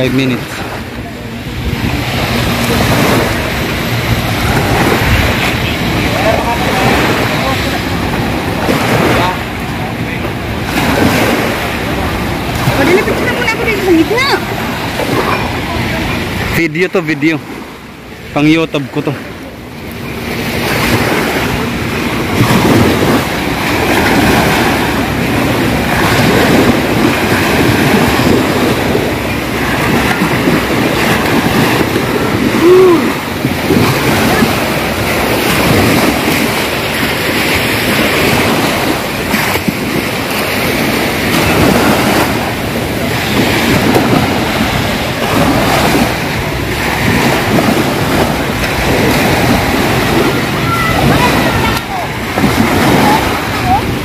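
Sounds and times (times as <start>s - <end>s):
wind across microphone: 0.0s - 16.6s, 19.8s - 54.0s
small waves washing onto sand: 0.0s - 54.0s.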